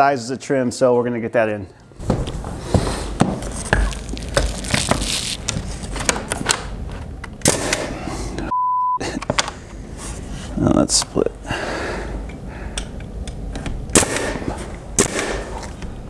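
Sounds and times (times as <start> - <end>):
pure bleep tone: 8.5 - 9.0.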